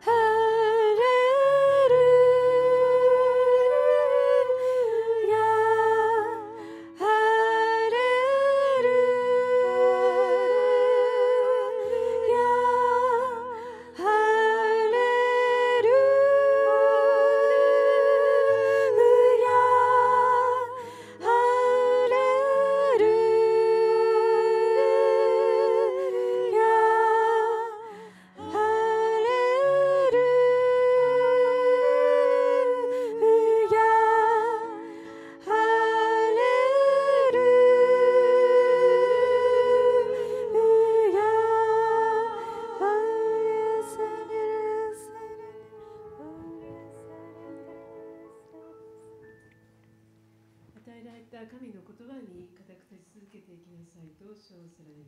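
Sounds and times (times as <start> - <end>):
women singing in harmony: 0.0 - 49.3
soft sustained keyboard notes: 0.0 - 52.0.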